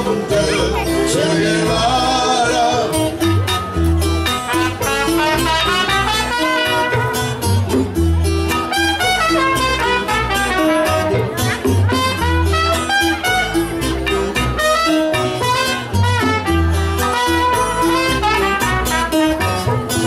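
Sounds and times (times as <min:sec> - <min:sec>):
plucked double bass: 0:00.0 - 0:20.0
strummed acoustic guitar: 0:00.0 - 0:20.0
bongos: 0:02.8 - 0:20.0
trumpet: 0:04.2 - 0:07.8, 0:08.5 - 0:20.0.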